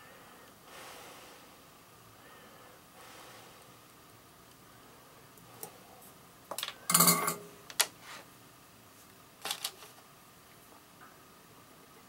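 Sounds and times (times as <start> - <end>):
small metal parts clinking: 6.5 - 7.5.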